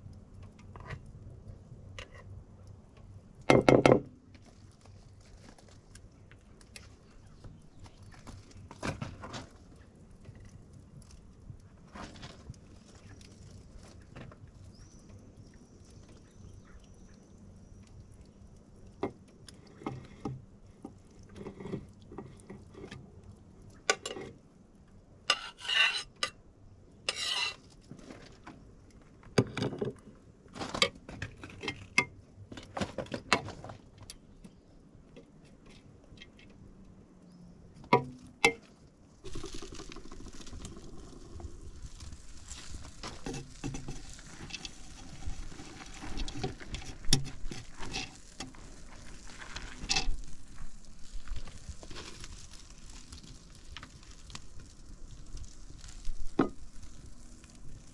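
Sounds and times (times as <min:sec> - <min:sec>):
utensils scraping: 0:25.3 - 0:26.2, 0:27.1 - 0:27.6
steady hiss: 0:39.1 - 0:57.9.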